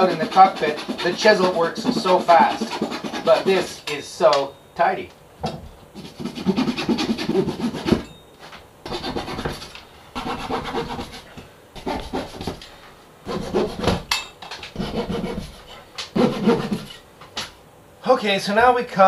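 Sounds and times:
hand saw rasping through wood: 0:00.0 - 0:03.8, 0:06.0 - 0:08.1, 0:08.9 - 0:12.6, 0:13.3 - 0:14.0, 0:14.8 - 0:17.0.

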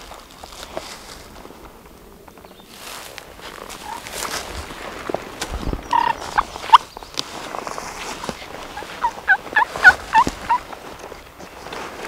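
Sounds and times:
turkey calling: 0:03.7 - 0:04.4, 0:05.8 - 0:07.0, 0:08.2 - 0:11.2.

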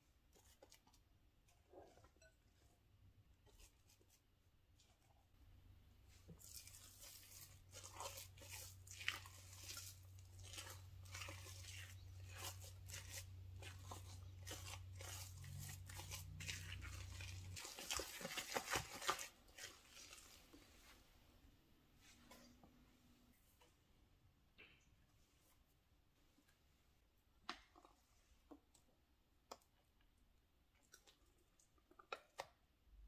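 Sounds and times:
spoon scraping and squishing in bowl: 0:00.2 - 0:05.4, 0:06.1 - 0:21.0.

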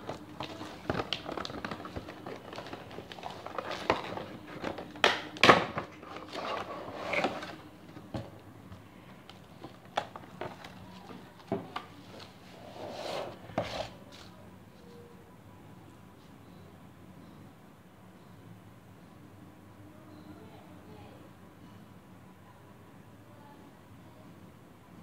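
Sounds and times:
cardboard box and plastic rustling: 0:00.0 - 0:08.4, 0:09.2 - 0:14.4.

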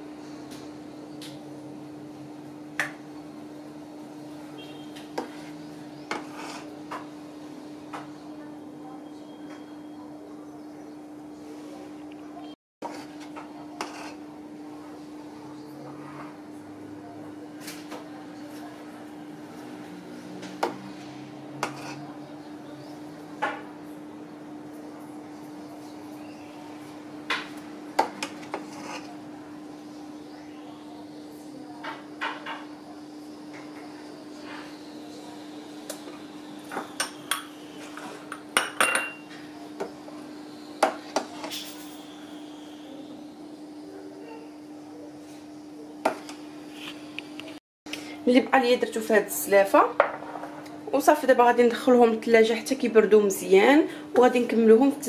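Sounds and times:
ladle clinking against pot and cups: 0:36.7 - 0:39.4
glass cups clinking on stone: 0:38.3 - 0:39.3.

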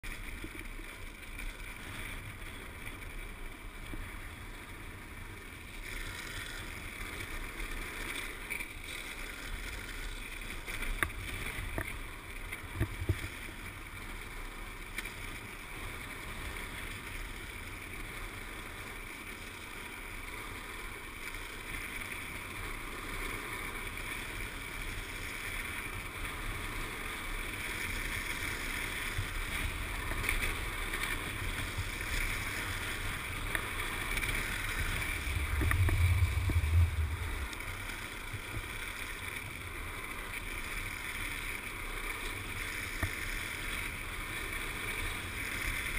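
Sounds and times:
wheels rolling on asphalt: 0:00.0 - 0:45.9
wind on the microphone: 0:28.6 - 0:40.3.

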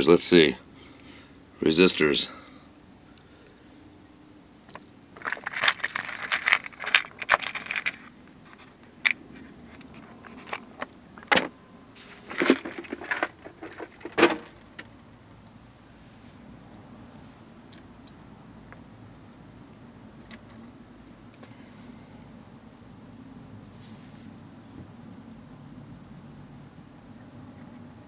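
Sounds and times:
resistors clinking in plastic box: 0:04.7 - 0:15.0.

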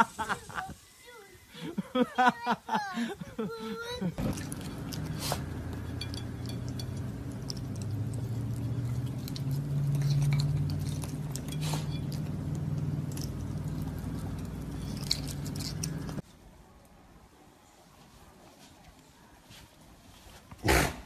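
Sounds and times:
low steady hum: 0:03.3 - 0:16.2
clinks against ceramic plate: 0:04.3 - 0:12.4.

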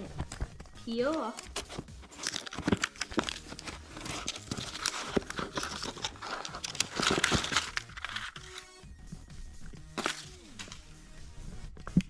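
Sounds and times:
plastic film crinkling: 0:01.3 - 0:08.8, 0:09.9 - 0:10.8.

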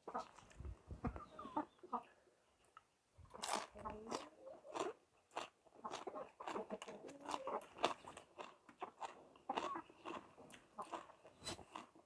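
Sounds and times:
man chewing crunchy food: 0:03.3 - 0:12.0.

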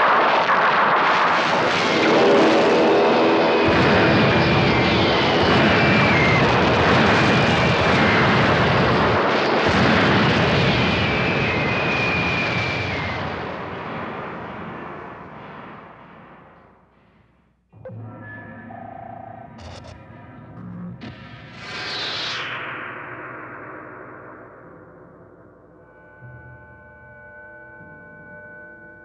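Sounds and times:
gunfire: 0:00.0 - 0:15.2
explosions: 0:00.0 - 0:16.6
aircraft engines droning: 0:01.8 - 0:07.1
long falling whistles: 0:04.0 - 0:06.6, 0:10.7 - 0:13.8.

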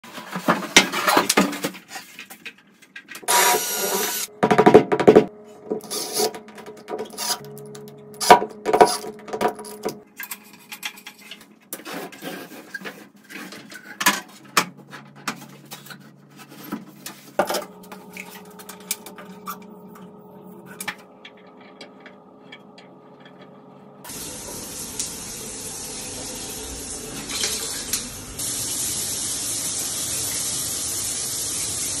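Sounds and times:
shower spray rushing: 0:24.1 - 0:32.0.

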